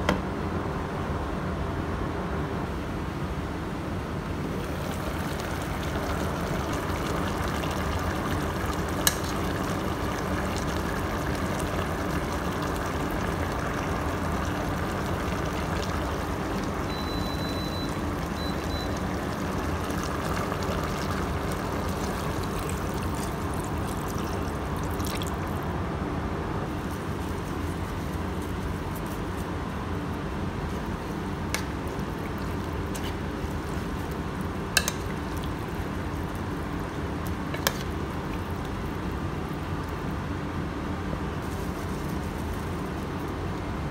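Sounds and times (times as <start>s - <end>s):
cooker fan humming: 0.0s - 43.9s
broth bubbling in a pot: 4.4s - 25.8s, 26.7s - 43.9s
short electronic beep: 16.9s - 19.0s.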